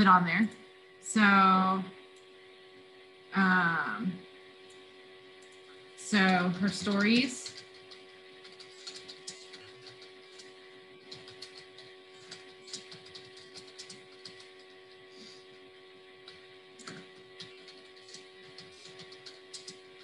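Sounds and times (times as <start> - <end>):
steady hum: 0.0 - 20.0
keyboard typing: 6.2 - 15.0, 16.2 - 20.0.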